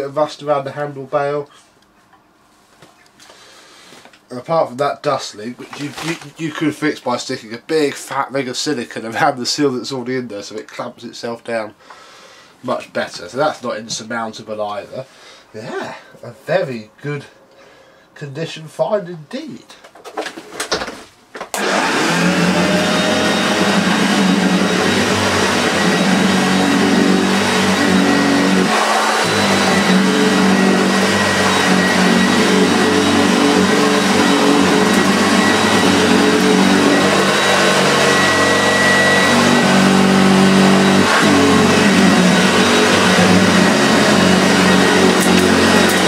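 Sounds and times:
vacuum cleaner running over carpet: 21.6s - 46.0s.

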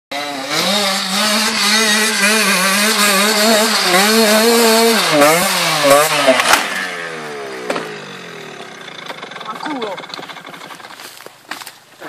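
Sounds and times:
dirt bike engine revving: 0.1s - 11.3s.

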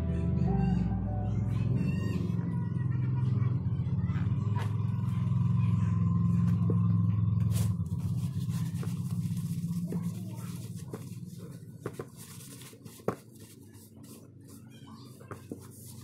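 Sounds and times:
low steady rumble: 0.0s - 12.7s
tissue rubbing over phone: 7.5s - 16.0s.

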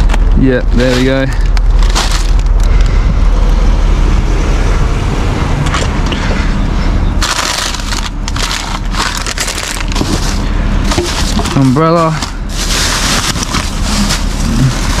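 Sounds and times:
plastic packaging crinkling: 0.0s - 2.8s, 7.2s - 15.0s
vehicle engine idling: 0.0s - 15.0s.

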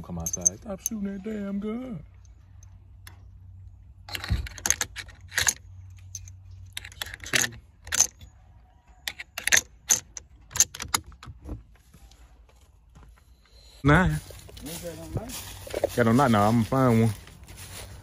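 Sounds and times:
rifle cartridges clicking: 4.1s - 8.3s.

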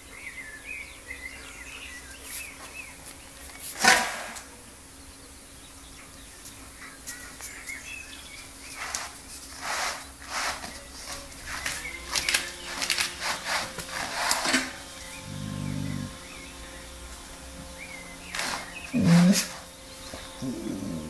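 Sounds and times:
dog chewing a bristly mat: 8.7s - 16.4s, 17.8s - 21.0s
dog growling: 15.1s - 16.5s, 18.4s - 21.0s.

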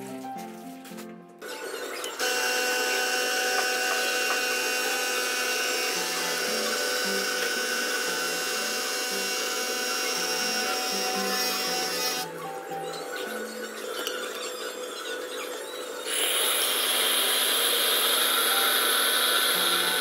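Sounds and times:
espresso machine pump buzzing: 1.4s - 12.3s, 16.0s - 20.0s.

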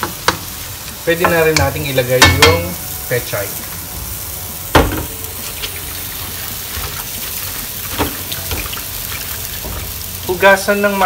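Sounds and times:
food simmering in a wok: 3.7s - 11.0s.

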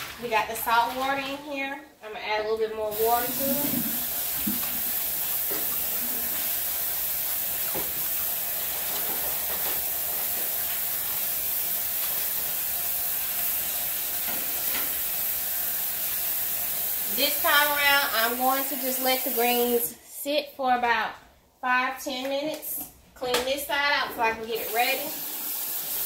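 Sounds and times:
tap running into sink: 3.6s - 6.6s, 7.6s - 8.2s, 14.2s - 15.1s.

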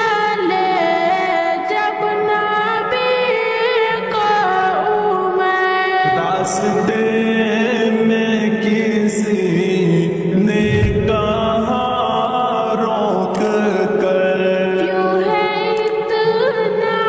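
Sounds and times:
deep boom: 10.5s - 12.8s.

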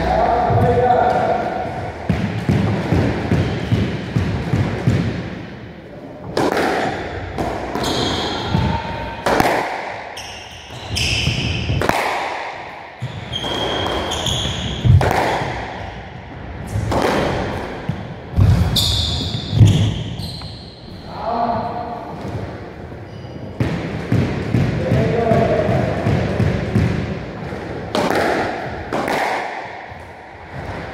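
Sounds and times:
squash ball cracking off rackets: 6.3s - 10.4s, 11.2s - 15.8s, 16.7s - 18.7s, 25.6s - 30.8s
shoes squeaking on wooden floor: 7.7s - 8.8s, 10.2s - 11.8s, 13.0s - 15.0s, 18.4s - 21.1s.

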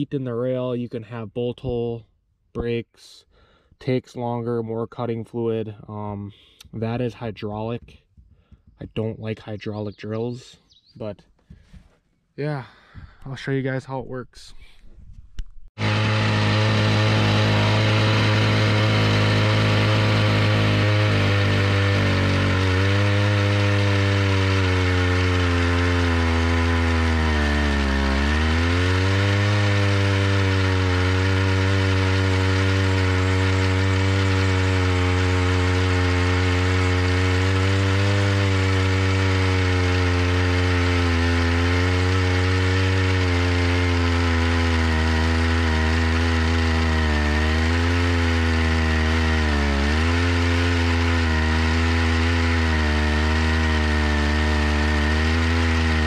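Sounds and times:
hole saw cutting steel: 15.8s - 56.0s
two-stroke engine running: 15.8s - 56.0s.

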